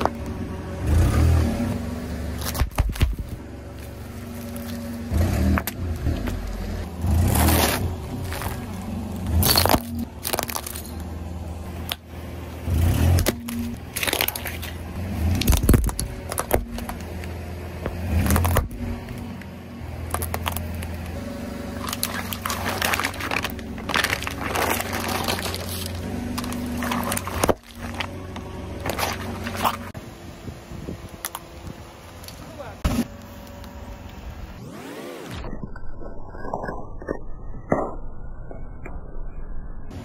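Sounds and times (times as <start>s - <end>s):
car engine humming: 0.0s - 35.5s
tyres crushing objects: 2.3s - 12.1s, 12.7s - 30.0s.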